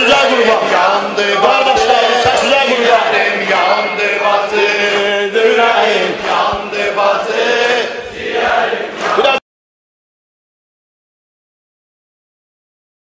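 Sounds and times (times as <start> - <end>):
man chanting a lament: 0.0 - 8.0.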